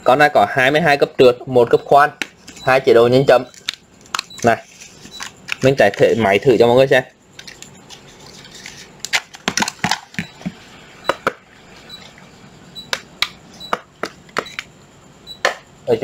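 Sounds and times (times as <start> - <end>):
hard objects clicking and knocking: 9.0 - 11.4.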